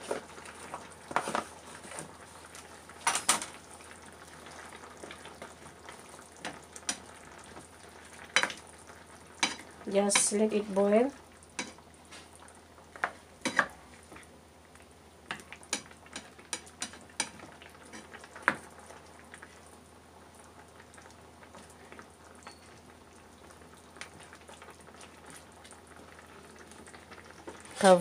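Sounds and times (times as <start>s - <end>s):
sauce bubbling: 0.0s - 27.9s
spatula scraping a pan: 17.2s - 18.2s.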